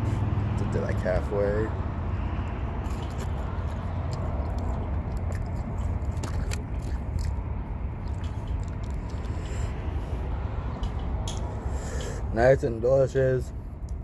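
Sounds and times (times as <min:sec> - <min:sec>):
person chewing: 0:02.4 - 0:10.3.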